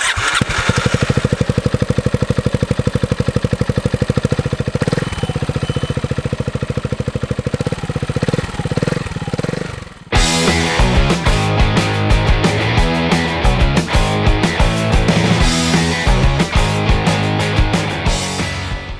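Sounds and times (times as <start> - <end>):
scooter engine idling: 0.0 - 11.0.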